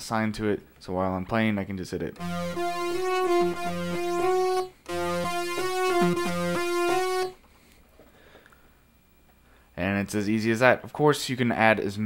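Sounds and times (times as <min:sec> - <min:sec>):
low synth bass note: 0:02.2 - 0:07.4
synthesizer keyboard phrase: 0:02.2 - 0:07.4.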